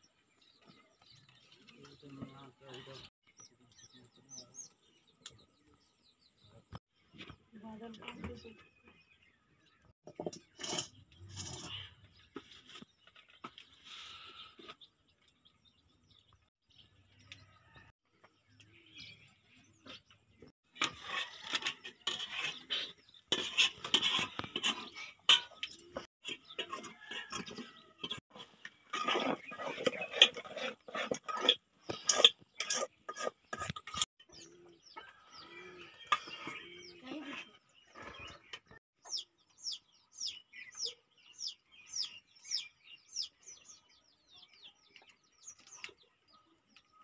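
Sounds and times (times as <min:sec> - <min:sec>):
metal spoon stirring in pot: 0:20.7 - 0:34.1.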